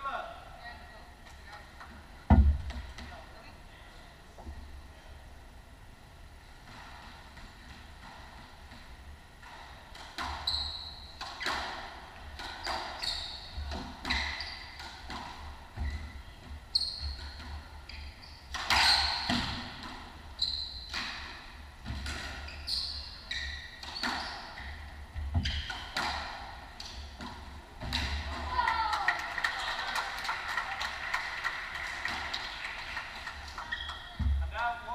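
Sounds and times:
squash ball struck by racquets: 2.2s - 3.0s, 13.6s - 16.0s, 18.5s - 22.5s, 23.8s - 28.6s
shoes squeaking on wooden floor: 10.4s - 11.6s, 12.6s - 14.8s, 15.7s - 19.7s, 20.3s - 21.2s, 22.1s - 25.9s, 33.7s - 34.4s.

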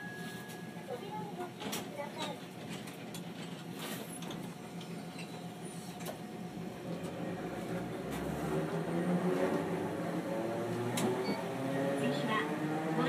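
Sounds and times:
tram motor hum and rising whine: 2.7s - 13.0s.

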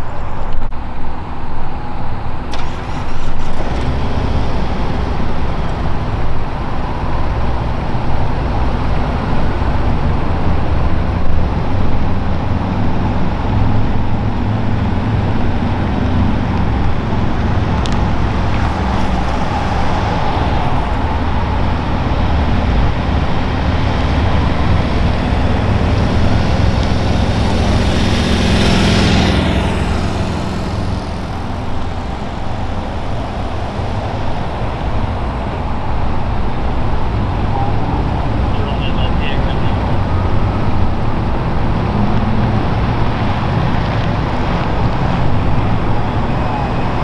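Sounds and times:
vehicles driving past: 0.0s - 47.0s
vehicle whooshing past close: 12.1s - 38.5s.

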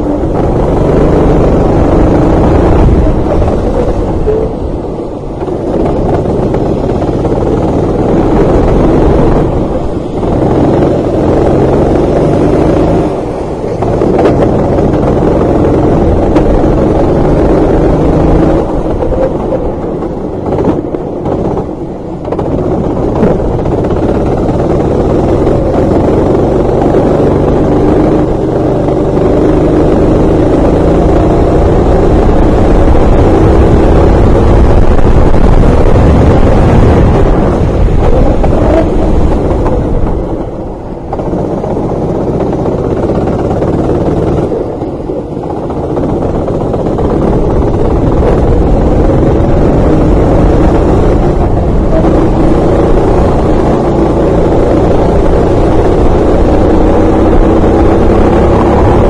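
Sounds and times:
kart engine running hard: 0.0s - 59.0s.

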